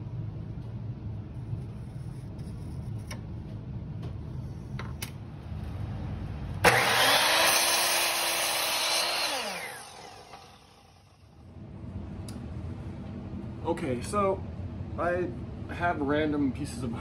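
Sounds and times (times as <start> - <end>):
miter saw cutting wood: 6.6 - 11.2
saw motor winding down: 6.6 - 11.4.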